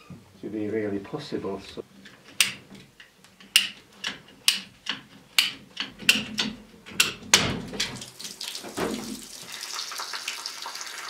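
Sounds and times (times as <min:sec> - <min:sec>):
ratcheting pipe cutter clicking: 0:02.0 - 0:07.3
water hissing from pipe: 0:08.0 - 0:11.0.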